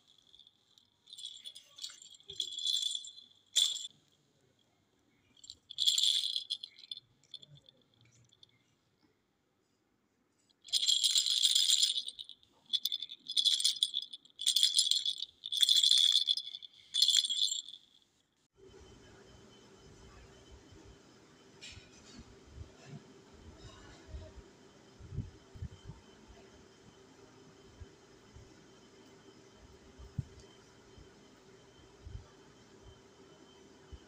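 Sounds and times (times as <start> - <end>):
plastic rattle toy shaken: 0.0 - 3.9, 5.4 - 8.4, 10.6 - 18.0.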